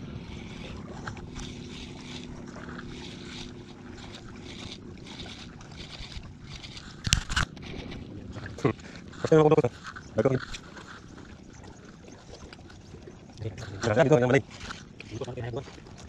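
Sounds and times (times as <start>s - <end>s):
small boat hum: 0.0s - 16.0s
water noise: 0.0s - 16.0s
wind: 0.0s - 16.0s.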